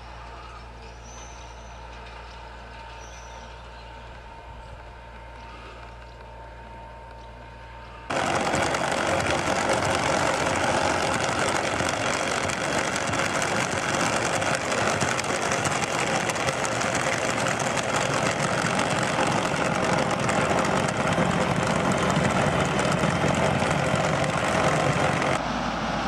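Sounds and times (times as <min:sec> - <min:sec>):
engine clattering hard: 0:08.1 - 0:25.4.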